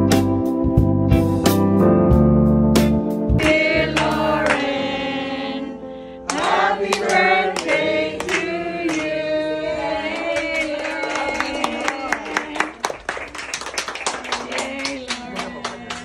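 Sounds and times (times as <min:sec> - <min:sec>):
song with keyboard accompaniment: 0:00.0 - 0:10.1.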